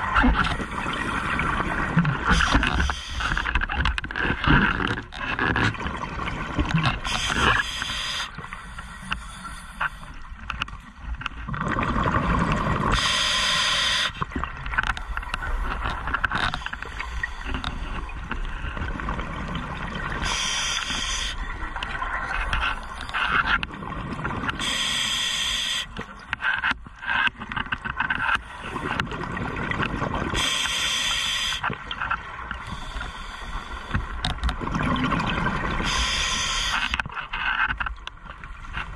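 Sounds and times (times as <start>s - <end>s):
bubbling gurgles: 0.0s - 7.7s, 11.2s - 13.1s, 14.2s - 24.6s, 28.6s - 30.4s, 34.2s - 36.0s
diver breathing through regulator: 7.1s - 10.1s, 12.9s - 14.2s, 20.2s - 21.4s, 24.6s - 26.0s, 35.8s - 37.0s.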